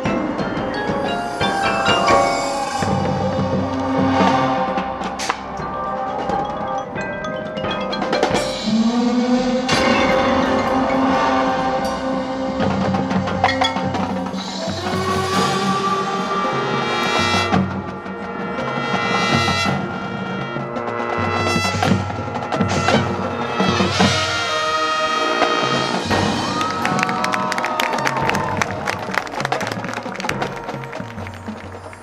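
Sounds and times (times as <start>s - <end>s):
percussion strikes: 0.0s - 32.0s
brass holding chords: 8.0s - 26.7s.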